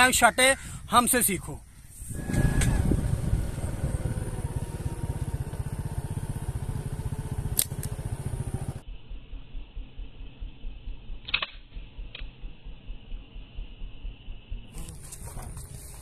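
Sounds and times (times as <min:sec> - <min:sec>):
engine low putter: 0:02.1 - 0:11.2
sharp clicks: 0:07.5 - 0:08.2, 0:11.2 - 0:12.5.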